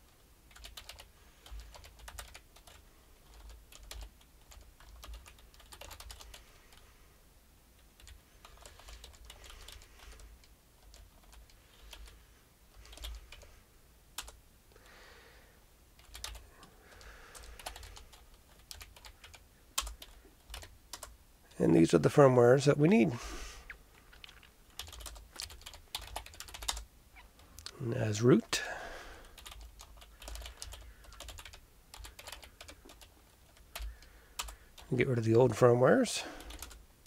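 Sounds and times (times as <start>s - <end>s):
typing on computer keyboard: 0.1s - 6.8s, 8.0s - 12.1s, 12.8s - 13.5s, 16.0s - 21.1s, 24.1s - 26.8s, 29.3s - 34.9s, 36.4s - 36.8s.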